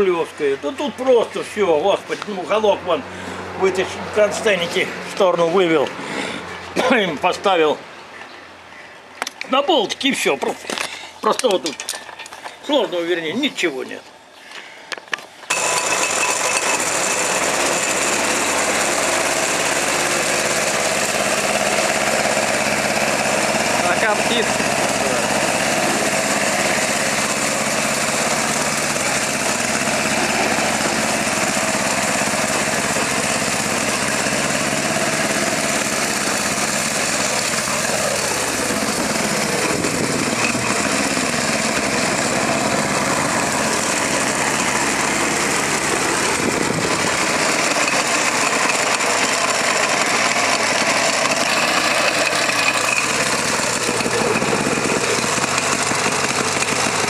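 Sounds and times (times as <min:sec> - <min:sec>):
tractor engine running: 0:15.5 - 0:57.0.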